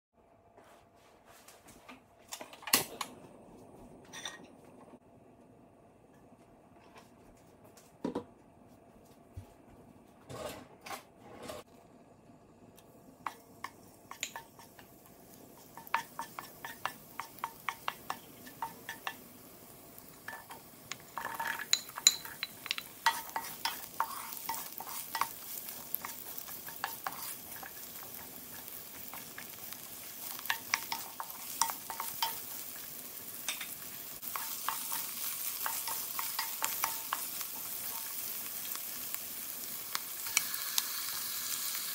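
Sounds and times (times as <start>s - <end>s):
oil sizzling and popping in pan: 12.8s - 41.9s
wooden spoon scraping a pan: 20.2s - 38.8s
onions dropping into hot oil: 25.2s - 41.0s.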